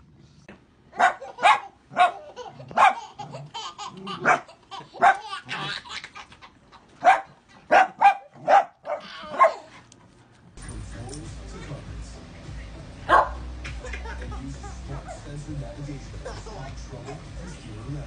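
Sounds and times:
small dog yapping: 0:07.0 - 0:09.7.

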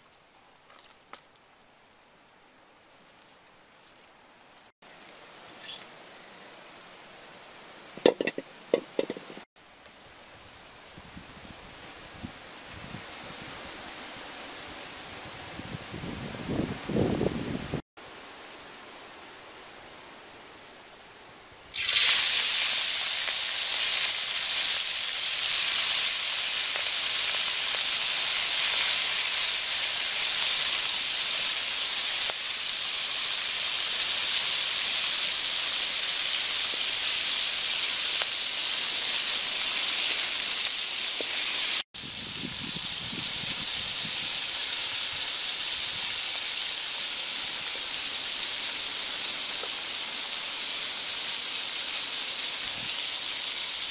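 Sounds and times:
shrimp sizzling in hot oil: 0:08.0 - 0:09.5, 0:21.7 - 0:53.9.

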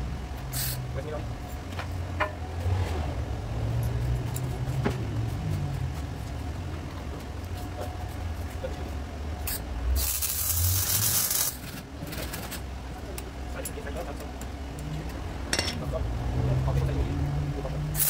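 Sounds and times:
harsh hissing burst from metalwork: 0:00.5 - 0:00.8, 0:09.5 - 0:11.6.

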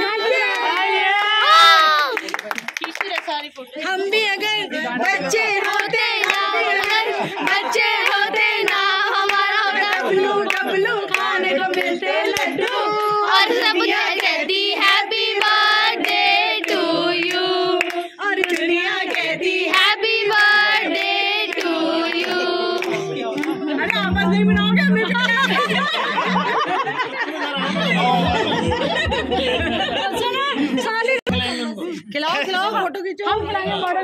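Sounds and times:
people clapping along: 0:00.0 - 0:29.7
group singing together: 0:04.2 - 0:30.8.

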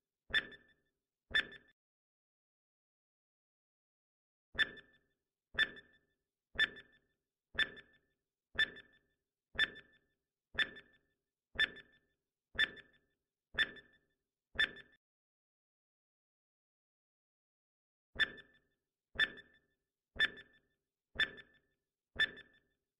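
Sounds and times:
timer ticking: 0:00.3 - 0:00.6, 0:05.6 - 0:05.9, 0:06.6 - 0:07.0, 0:07.6 - 0:08.0, 0:08.6 - 0:09.0, 0:09.6 - 0:10.0, 0:10.6 - 0:11.0, 0:11.6 - 0:11.9.

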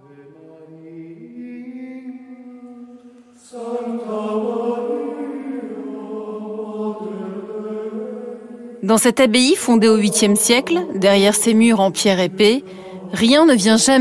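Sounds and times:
male voices chanting: 0:00.0 - 0:08.8.

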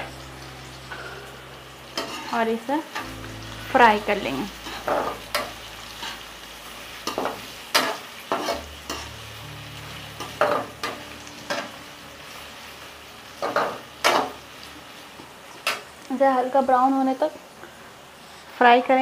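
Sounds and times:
onions sizzling in hot oil: 0:00.0 - 0:19.0
metal spoon scraping a pan: 0:02.0 - 0:02.6, 0:07.0 - 0:09.2.

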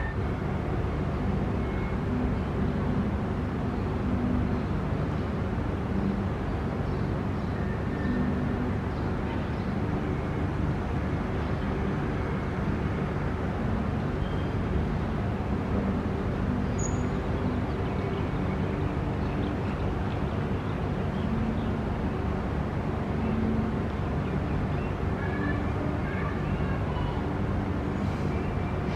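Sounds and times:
faint hum: 0:00.0 - 0:28.9
low background rumble: 0:00.0 - 0:28.9
high chirp: 0:05.9 - 0:21.8.

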